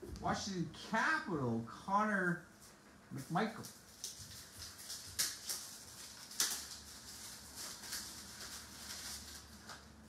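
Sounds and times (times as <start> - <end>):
trading cards rustling: 3.2 - 10.0.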